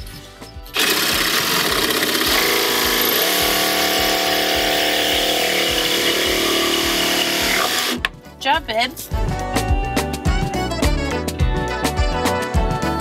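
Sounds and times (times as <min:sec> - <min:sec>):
jigsaw cutting through plywood: 0:00.8 - 0:08.1.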